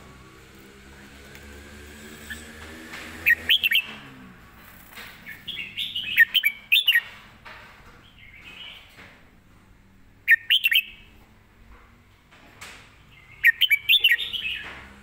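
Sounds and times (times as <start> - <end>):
bird singing whistled notes: 3.2 - 3.9, 5.3 - 7.0, 10.3 - 11.0, 13.2 - 14.6.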